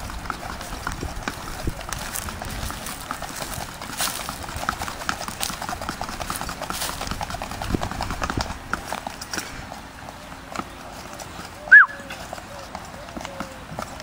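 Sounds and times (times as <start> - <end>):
horse hoofbeats on dirt: 0.0 - 14.0.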